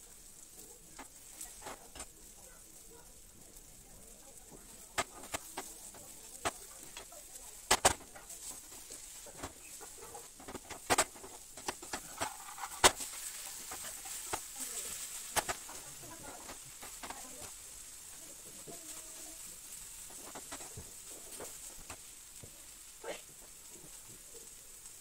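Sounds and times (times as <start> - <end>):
frying hiss: 0.0 - 25.0
metal skimmer scraping a frying pan: 4.8 - 17.6.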